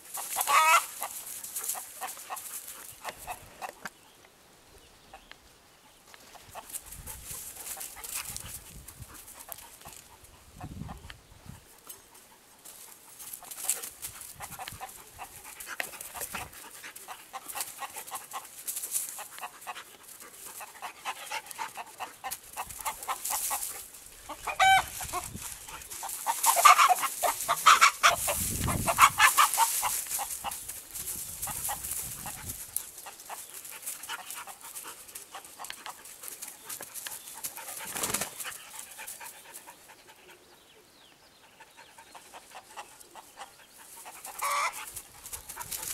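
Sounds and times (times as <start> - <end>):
rooster clucking: 0.0 - 3.8, 14.4 - 30.6, 31.4 - 33.5, 42.1 - 45.9
puppy panting: 11.6 - 29.7, 31.5 - 40.6.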